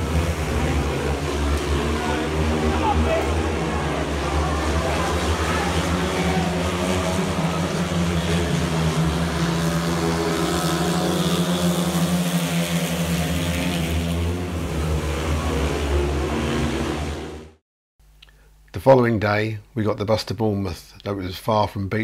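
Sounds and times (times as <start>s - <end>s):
motorcycle engines racing: 0.0s - 17.6s.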